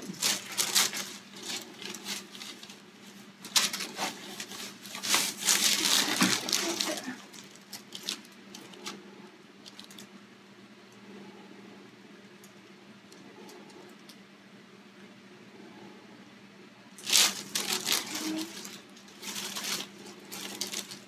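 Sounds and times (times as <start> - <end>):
paper and hair rustling: 0.0 - 9.0, 17.0 - 21.0
faint steady hum: 0.0 - 21.0.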